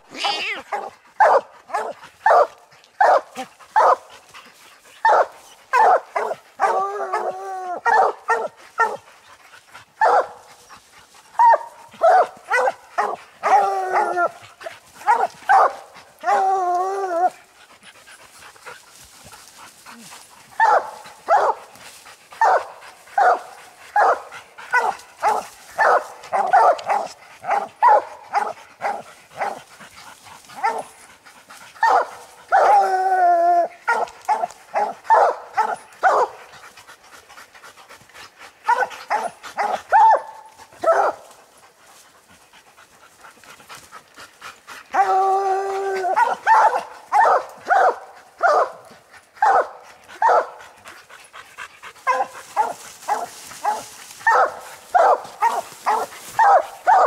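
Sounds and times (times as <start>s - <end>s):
hounds chop barking: 0.7s - 4.4s, 5.0s - 9.1s, 9.7s - 17.4s, 18.3s - 31.0s, 31.8s - 33.0s, 33.6s - 36.7s, 38.6s - 41.6s, 43.4s - 57.0s
hounds bawling: 5.0s - 9.0s, 11.3s - 17.9s.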